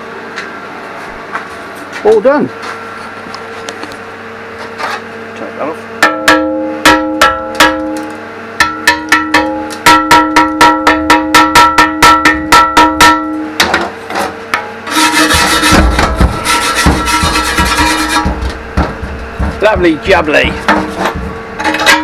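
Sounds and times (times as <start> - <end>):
hammer striking steel: 6.0 - 13.9, 14.6 - 22.0
rough scrubbing on metal: 14.9 - 22.0.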